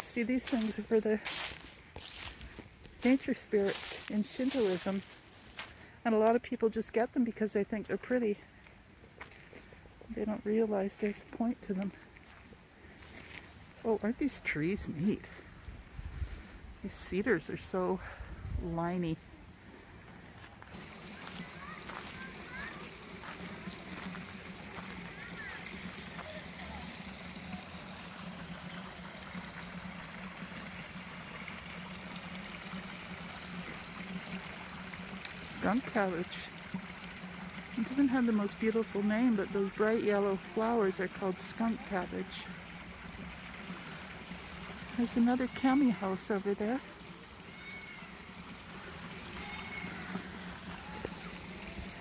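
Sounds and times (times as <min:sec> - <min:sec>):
stream flowing over rocks: 0:00.0 - 0:06.3, 0:20.4 - 0:52.0.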